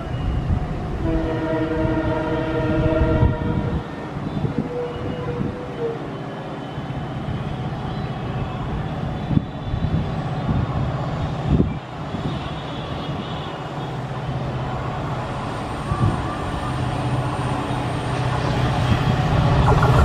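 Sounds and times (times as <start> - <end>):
diesel locomotive engine rumble: 0.0 - 20.0
train horn: 1.0 - 6.8, 18.9 - 20.0.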